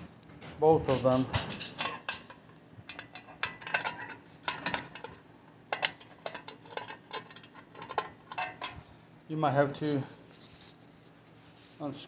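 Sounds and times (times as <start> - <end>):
metal anchors clinking and rattling: 1.8 - 8.8.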